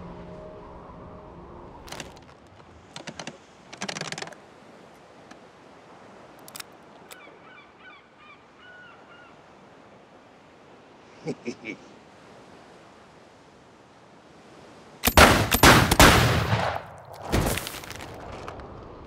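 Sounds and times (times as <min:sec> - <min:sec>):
sharp clicks: 0:02.9 - 0:04.4.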